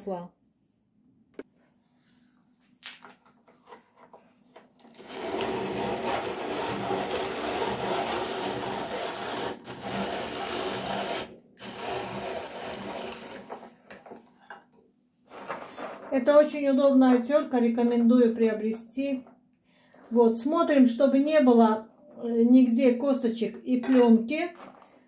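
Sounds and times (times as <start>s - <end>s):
rotary grater grinding rattle: 5.0s - 14.1s.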